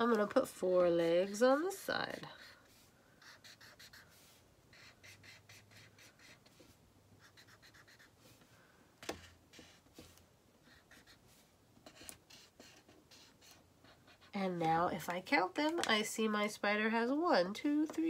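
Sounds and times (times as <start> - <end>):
marker scratching on paper: 0.8 - 8.4, 9.0 - 14.4.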